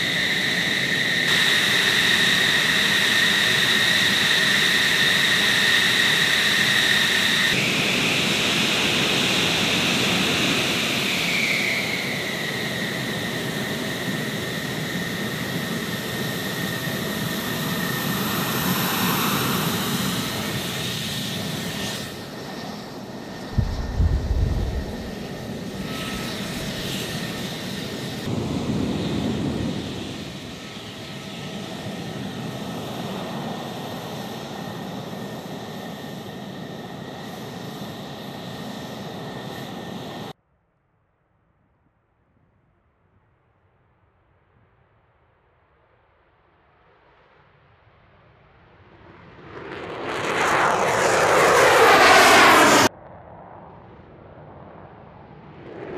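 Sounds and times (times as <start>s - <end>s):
jet engine whine: 0.0s - 40.4s, 46.8s - 55.9s
brief low rumble: 23.6s - 25.3s.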